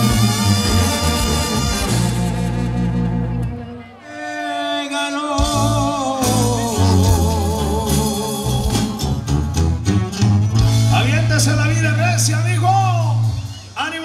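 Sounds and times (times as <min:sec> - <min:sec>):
bass: 0:00.0 - 0:04.0, 0:05.4 - 0:14.0
music with singing: 0:03.5 - 0:11.8.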